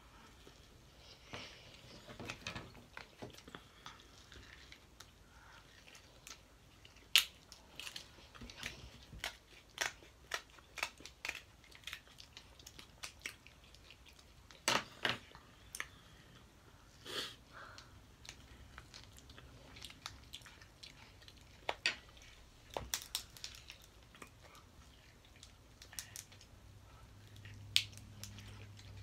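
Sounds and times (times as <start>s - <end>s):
chewing: 0.2s - 14.7s, 17.7s - 29.0s
seafood shells cracking: 7.0s - 13.4s, 22.7s - 24.1s.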